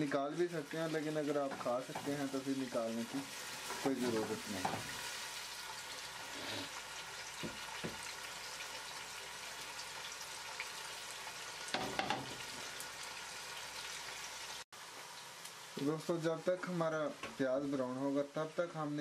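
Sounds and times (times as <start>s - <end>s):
onions sizzling in hot oil: 0.0s - 19.0s.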